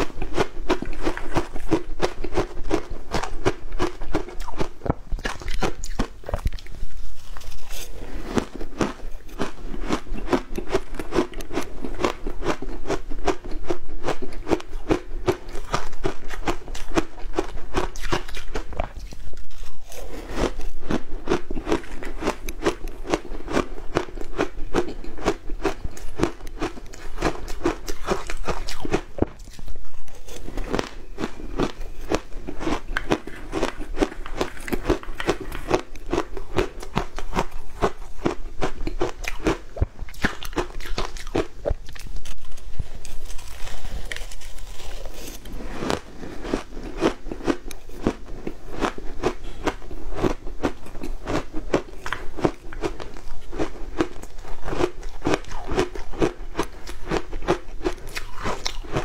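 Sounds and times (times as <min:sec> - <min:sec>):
ice being chewed crunching: 0:00.0 - 0:59.0.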